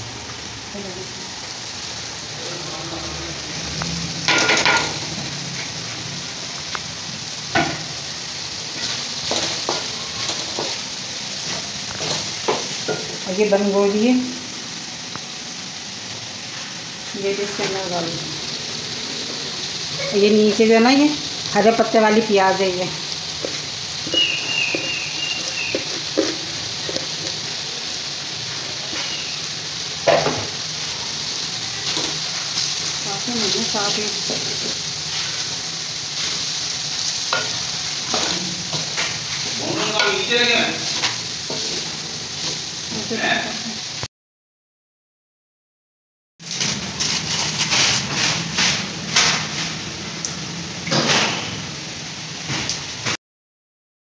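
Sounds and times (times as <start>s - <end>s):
food sizzling in hot oil: 0.0s - 44.1s, 46.4s - 53.2s
wooden spatula scraping a pan: 23.3s - 27.6s, 37.3s - 43.3s, 46.5s - 49.8s.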